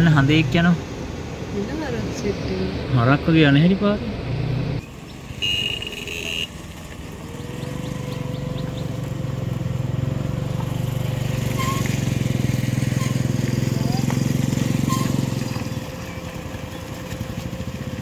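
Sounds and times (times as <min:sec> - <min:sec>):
vehicle engine running: 0:04.4 - 0:18.0.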